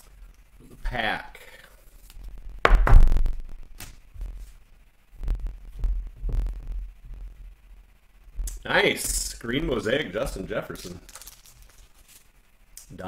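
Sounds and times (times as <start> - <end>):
trading cards thumping and clicking: 2.7 - 3.9.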